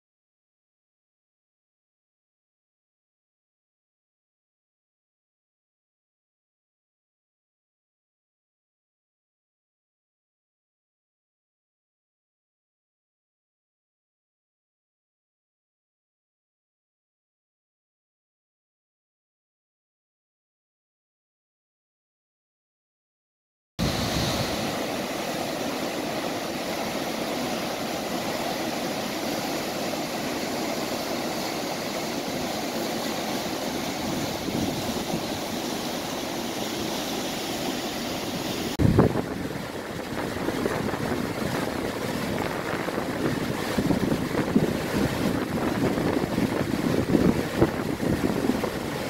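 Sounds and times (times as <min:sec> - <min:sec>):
wind buffeting microphone: 0:23.8 - 0:25.0, 0:33.9 - 0:35.5, 0:38.8 - 0:49.0
floodwater rushing: 0:23.8 - 0:49.0.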